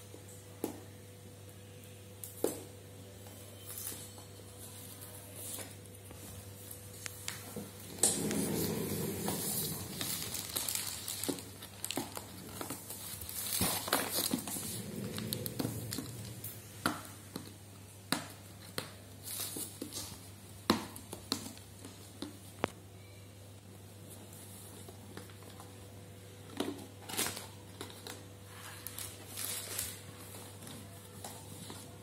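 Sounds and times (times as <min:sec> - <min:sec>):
packaging crinkling: 0:07.9 - 0:16.6, 0:27.0 - 0:31.9.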